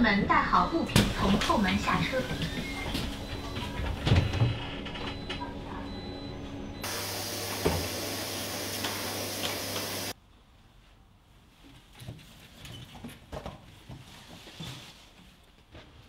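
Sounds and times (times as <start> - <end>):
vacuum cleaner running: 1.0 - 3.6, 6.8 - 10.2.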